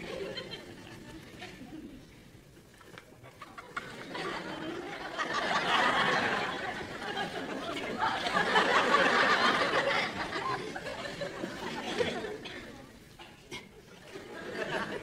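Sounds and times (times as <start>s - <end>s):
studio audience laughing: 0.0s - 1.4s, 3.2s - 12.9s, 14.0s - 15.0s.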